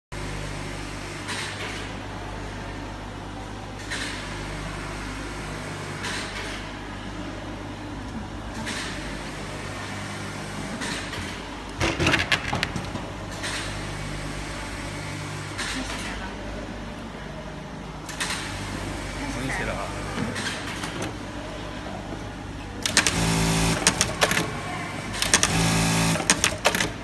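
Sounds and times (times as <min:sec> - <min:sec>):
sewing machine humming: 0:22.8 - 0:27.0.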